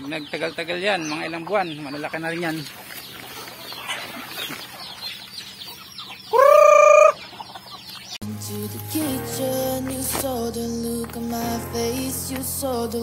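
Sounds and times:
chickens clucking: 0.0s - 8.2s
loud chicken call: 6.0s - 7.7s
music: 8.2s - 13.0s.

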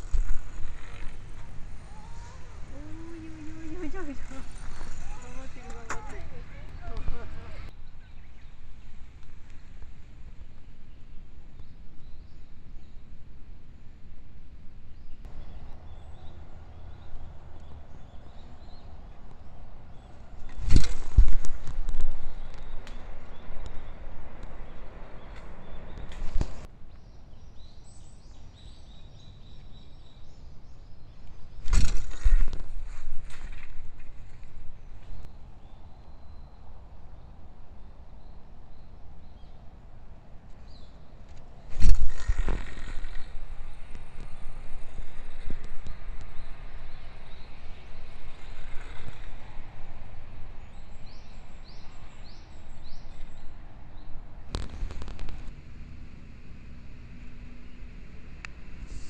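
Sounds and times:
small birds chirping: 0.0s - 13.1s, 14.9s - 55.5s
bird chirping: 14.9s - 39.8s
wind buffeting microphone: 15.3s - 26.7s.

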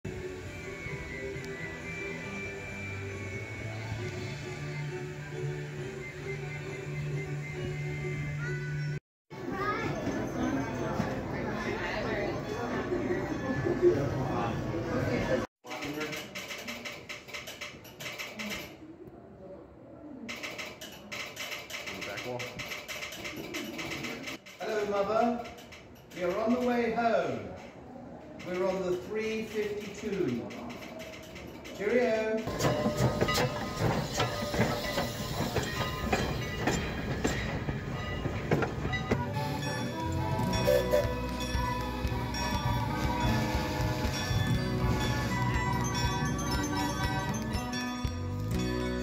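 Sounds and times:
train wheels clacking over rail joints: 15.7s - 18.7s, 20.3s - 24.6s, 28.4s - 47.4s.

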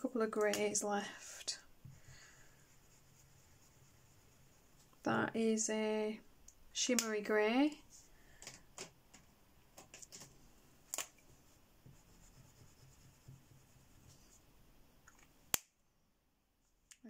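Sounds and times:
crayon rubbing on paper: 11.9s - 14.4s.

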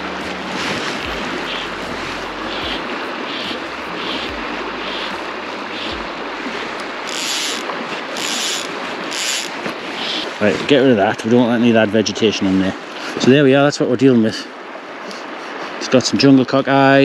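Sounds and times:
low bumps on microphone: 0.0s - 7.0s
river rushing: 0.0s - 17.0s.

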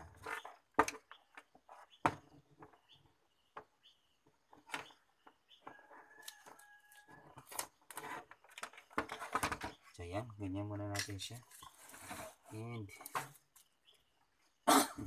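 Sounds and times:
rooster crowing: 5.7s - 7.3s.

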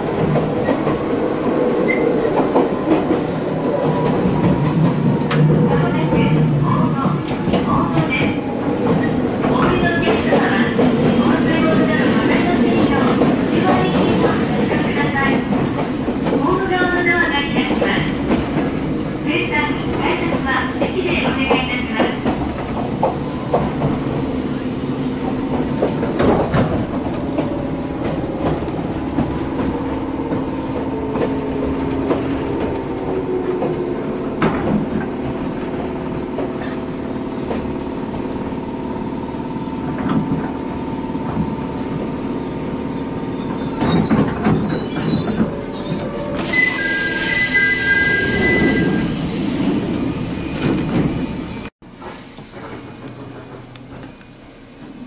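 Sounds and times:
train motor and gear hum: 0.0s - 55.0s
high brake squeal: 42.2s - 49.3s, 54.8s - 55.0s.

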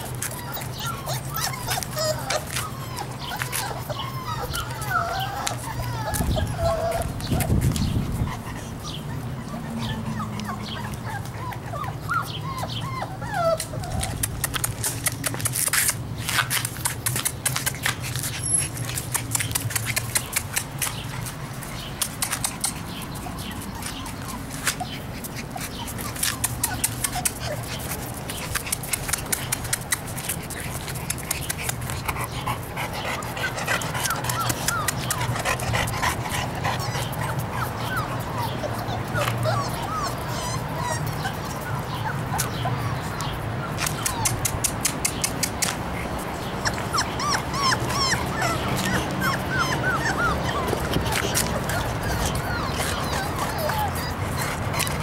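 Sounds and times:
puppies whining: 0.0s - 55.0s
small sharp clicks and ticks: 13.6s - 23.3s, 25.9s - 32.1s, 33.7s - 35.4s, 43.2s - 45.8s.

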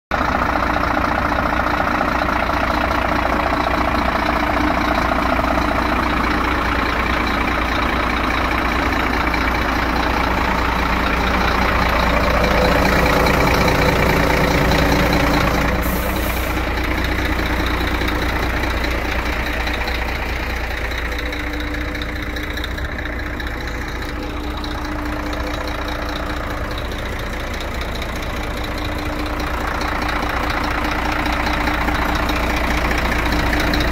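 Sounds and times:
diesel engine idling: 0.1s - 33.9s.

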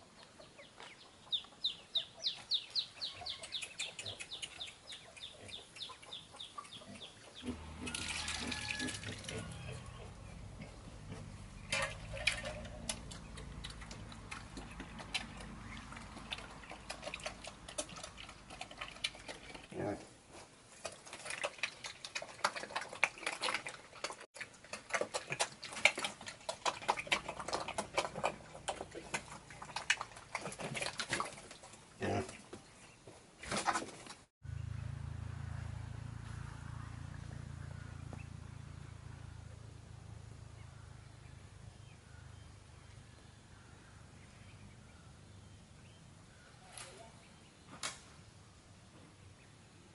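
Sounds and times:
pigs chewing and smacking: 2.2s - 32.7s.

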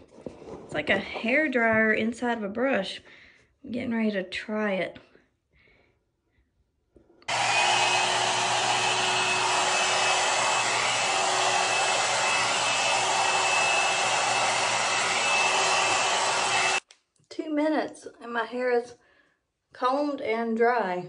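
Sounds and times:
hair dryer blowing: 7.3s - 16.9s.

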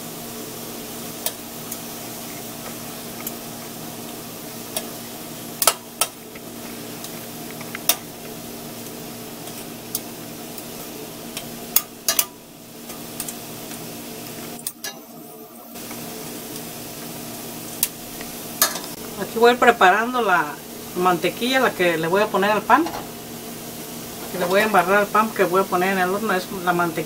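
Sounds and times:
shrimp sizzling in a pan: 0.0s - 27.0s
metal tongs clicking on pan: 4.7s - 4.9s, 5.6s - 6.2s, 7.8s - 8.1s, 9.4s - 10.7s, 11.3s - 13.4s, 14.6s - 15.0s.

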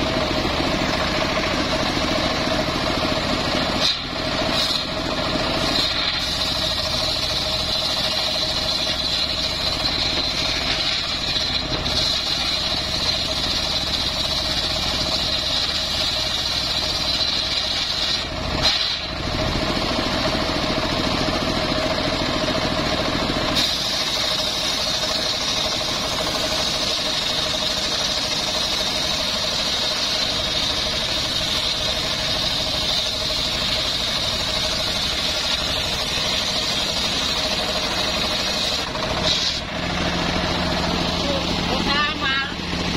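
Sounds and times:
running motor: 0.0s - 42.9s
circular saw blade ripping log: 3.6s - 5.0s, 5.6s - 14.6s, 15.3s - 19.2s, 23.6s - 40.2s.

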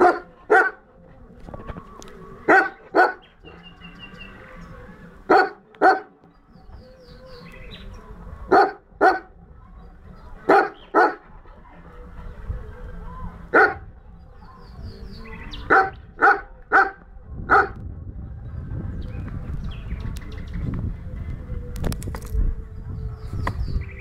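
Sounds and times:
dog barking: 0.0s - 0.8s, 2.5s - 3.3s, 5.3s - 6.1s, 8.5s - 9.3s, 10.5s - 11.3s, 13.5s - 13.9s, 15.6s - 17.8s.

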